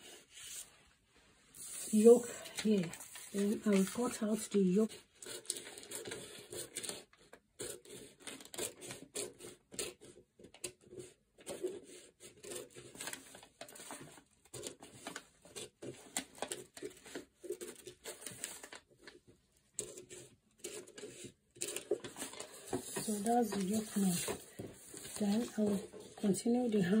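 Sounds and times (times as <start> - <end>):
scissors snipping paper: 2.6 - 11.7, 19.8 - 24.4.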